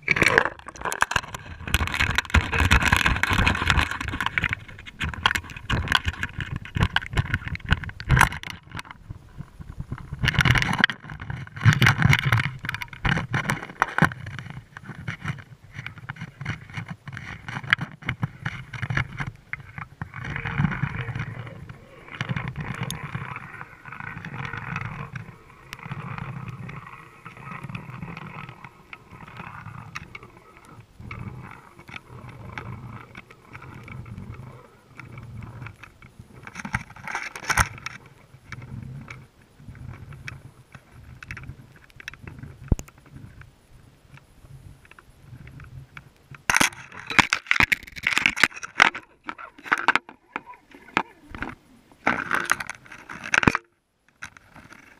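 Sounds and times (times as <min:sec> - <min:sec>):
muffled underwater water rush: 0:00.0 - 0:53.4
clicks and knocks: 0:46.4 - 0:54.9.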